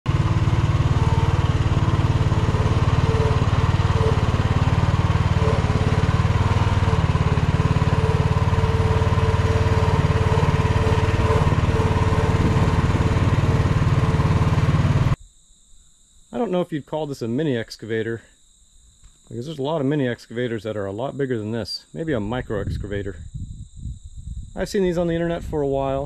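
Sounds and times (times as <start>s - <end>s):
excavator engine running: 0.0s - 15.2s.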